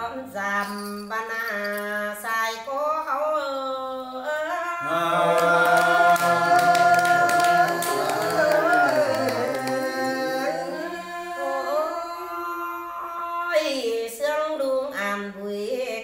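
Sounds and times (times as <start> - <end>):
man and woman singing folk song: 4.7 - 13.3.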